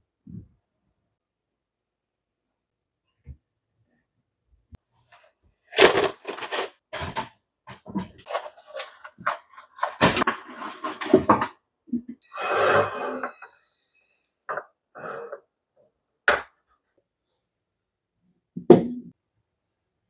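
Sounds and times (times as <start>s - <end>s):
plastic shelf liner rustling: 5.0s - 11.4s.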